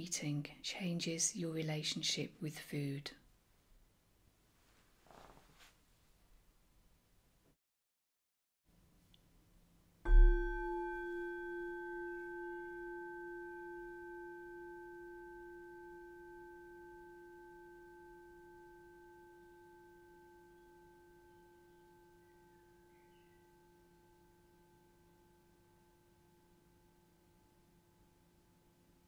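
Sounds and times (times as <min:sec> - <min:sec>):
singing bowl ringing: 0:10.1 - 0:28.4.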